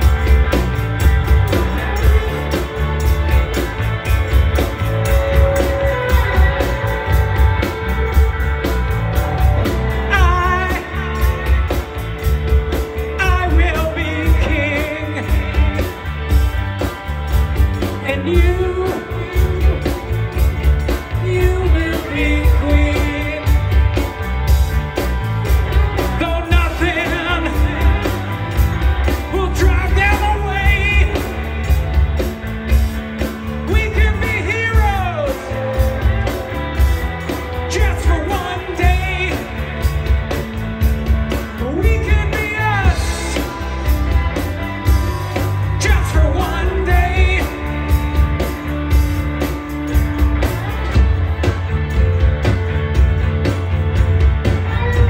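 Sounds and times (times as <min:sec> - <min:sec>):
bass guitar: 0:00.0 - 0:55.0
drum kit beat: 0:00.0 - 0:55.0
electric guitars: 0:00.0 - 0:55.0
person singing: 0:04.6 - 0:12.0, 0:12.7 - 0:16.5, 0:17.8 - 0:24.2, 0:25.7 - 0:40.4, 0:41.4 - 0:48.6.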